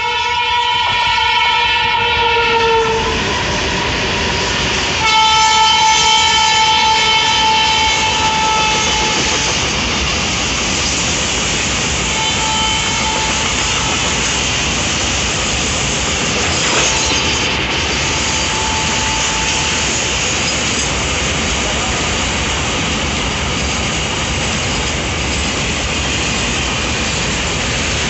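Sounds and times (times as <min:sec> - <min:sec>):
train horn: 0:00.0 - 0:03.9, 0:04.9 - 0:09.7, 0:12.0 - 0:14.4, 0:18.0 - 0:20.0
train wheels rumbling and rattling: 0:00.0 - 0:28.0.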